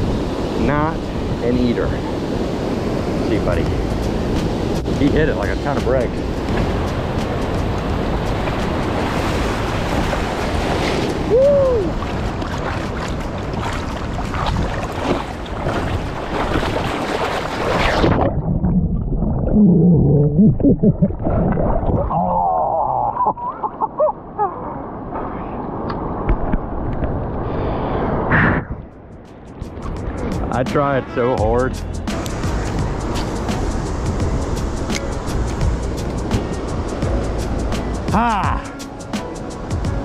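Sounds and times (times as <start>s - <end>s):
underwater bubbling and gurgling: 11.9s - 23.9s.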